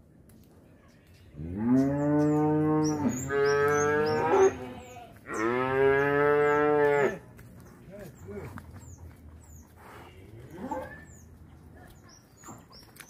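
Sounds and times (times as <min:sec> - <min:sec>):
faint birds chirping: 0:00.0 - 0:13.0
cattle mooing: 0:01.4 - 0:07.2.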